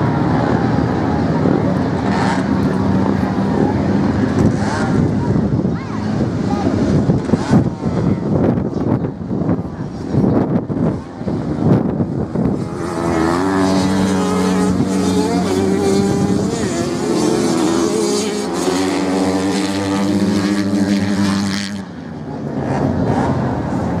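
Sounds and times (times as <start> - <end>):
wind on microphone: 0.0 - 21.8
dirt bike engine passing: 12.4 - 22.0.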